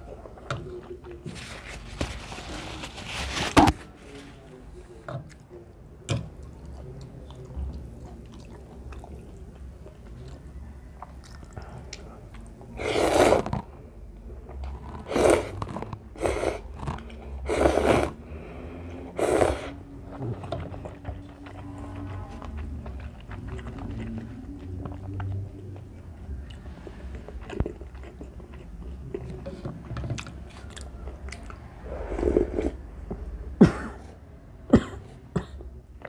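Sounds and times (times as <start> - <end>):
person chewing noodles: 6.4 - 13.8, 14.5 - 33.3
loud slurps: 12.8 - 13.6, 15.0 - 16.6, 17.4 - 18.2, 19.1 - 19.8.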